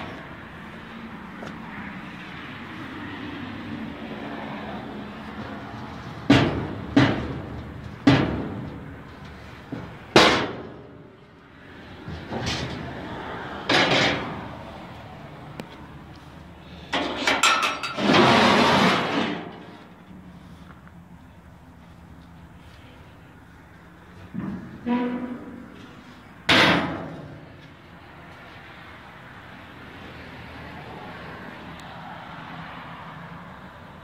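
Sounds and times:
metallic scraping: 0:16.8 - 0:19.9, 0:24.4 - 0:26.3
rattle of hits: 0:16.9 - 0:19.7
metal smoker doors clanking: 0:26.5 - 0:27.4.

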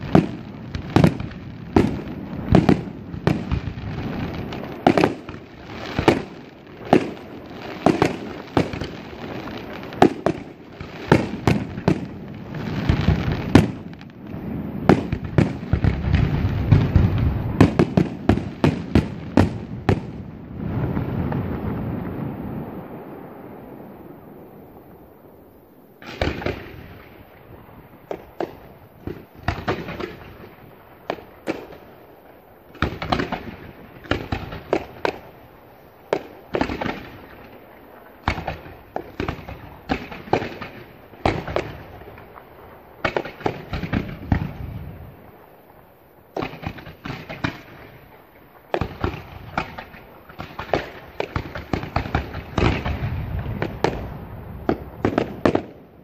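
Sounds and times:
fireworks launching and bursting: 0:00.0 - 0:56.0.

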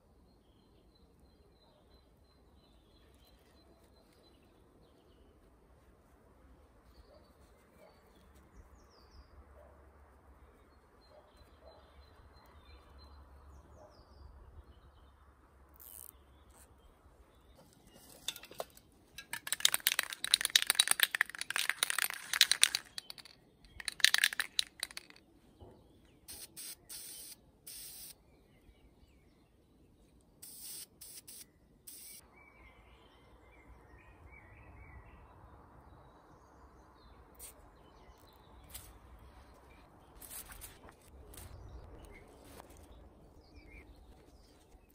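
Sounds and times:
spray can rattling when shaken: 0:18.3 - 0:25.2, 0:26.3 - 0:28.1
spray can hissing: 0:26.3 - 0:28.1, 0:30.4 - 0:32.2.

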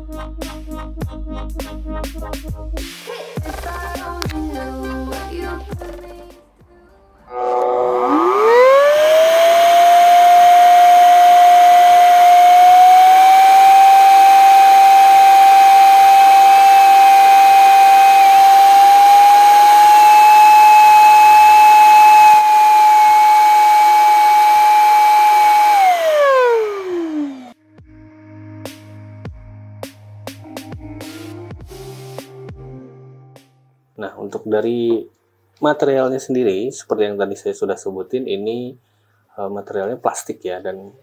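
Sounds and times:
air duster motor whine: 0:07.3 - 0:27.6.

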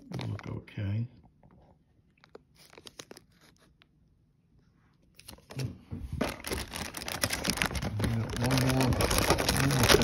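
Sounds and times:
plastic bags crinkling: 0:00.0 - 0:00.7, 0:06.2 - 0:10.0.

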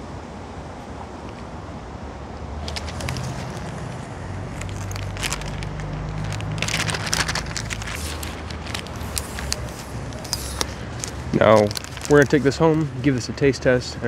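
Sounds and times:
low steady rumble: 0:00.0 - 0:13.3
plastic bag crinkling: 0:02.6 - 0:13.2.

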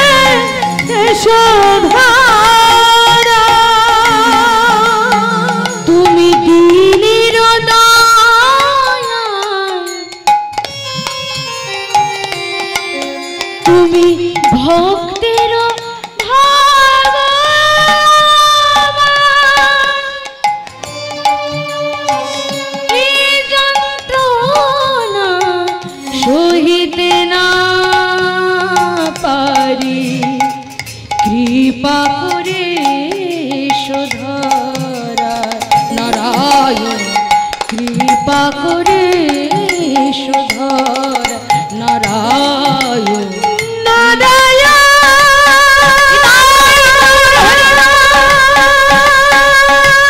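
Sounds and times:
hand drum: 0:00.0 - 0:50.0.

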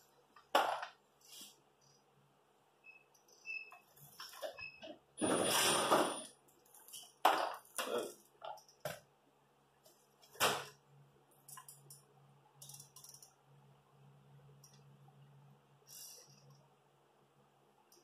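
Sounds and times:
low steady hum: 0:07.7 - 0:18.0.

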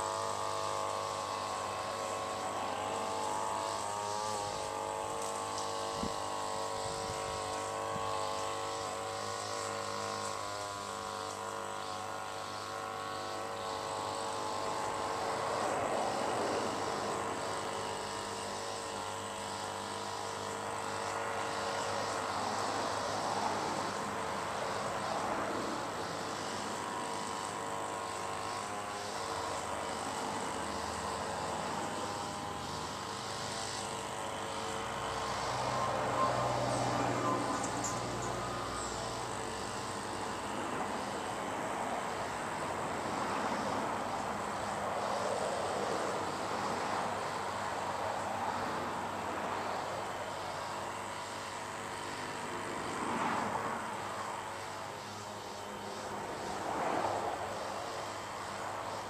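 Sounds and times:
distant engine drone: 0:00.0 - 0:59.0.

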